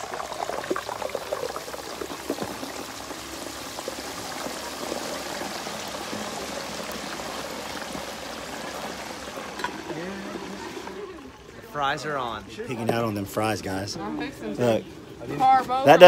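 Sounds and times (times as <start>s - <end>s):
fries sizzling in hot oil: 0.0s - 11.1s.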